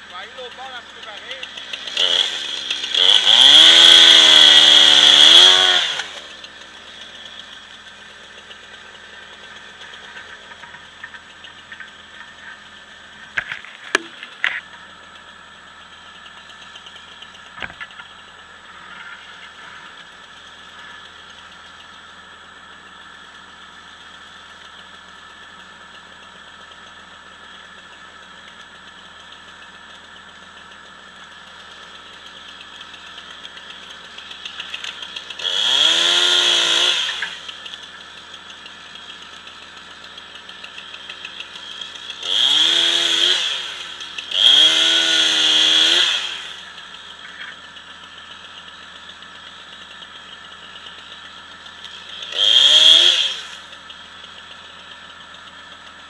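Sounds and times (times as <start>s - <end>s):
chainsaw cutting: 0.0s - 56.0s
engine idling: 0.0s - 56.0s.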